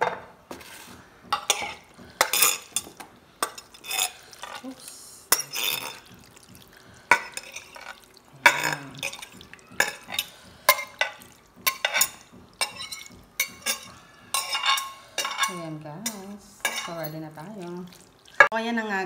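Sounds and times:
knife scraping glass dish: 1.5s - 4.6s.

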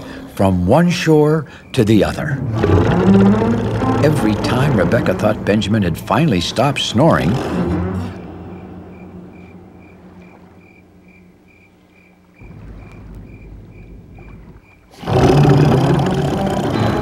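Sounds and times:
crickets chirping: 0.0s - 16.9s
low hum: 0.0s - 17.0s
low rumble: 2.2s - 11.5s, 12.3s - 14.7s.

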